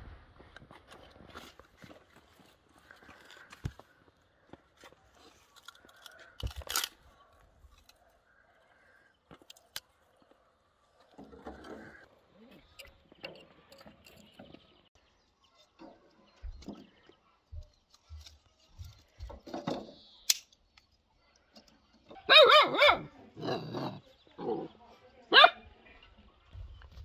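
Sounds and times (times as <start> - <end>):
dog barking: 22.2 - 23.6, 25.3 - 25.6.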